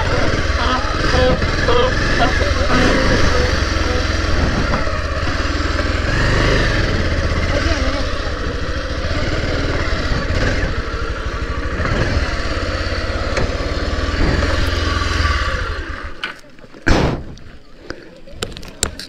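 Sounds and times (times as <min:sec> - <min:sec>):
motorcycle engine running slowly: 0:00.0 - 0:16.3
sharp clunk: 0:16.8 - 0:17.4.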